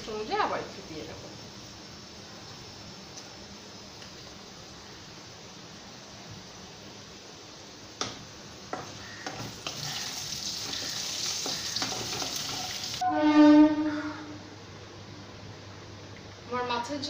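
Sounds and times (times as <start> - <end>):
potatoes sizzling in oil: 0.0 - 13.0
spatula scraping a pan: 9.2 - 13.8
loud steady pitched tone: 13.0 - 14.6.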